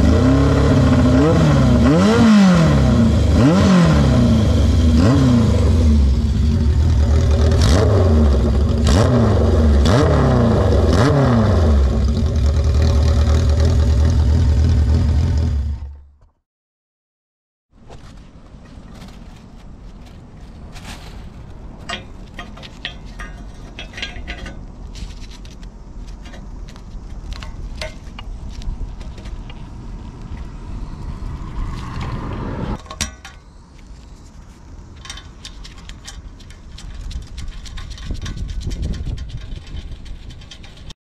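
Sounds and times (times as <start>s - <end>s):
motorcycle engine revving: 0.0s - 16.2s.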